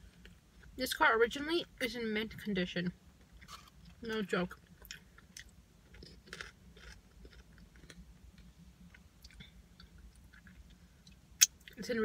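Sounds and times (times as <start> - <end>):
person chewing food: 4.6 - 11.8.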